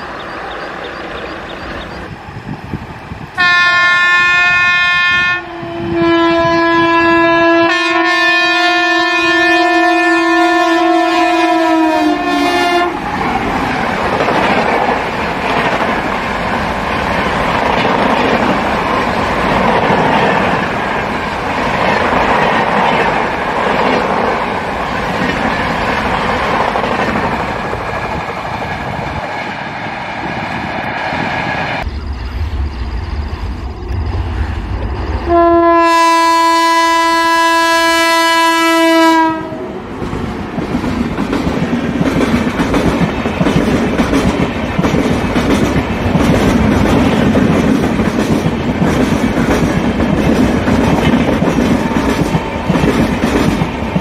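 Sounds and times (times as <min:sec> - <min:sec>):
locomotive air horn: 0:03.4 - 0:13.0, 0:35.3 - 0:39.6
train wheels clattering on rails: 0:39.9 - 0:54.0.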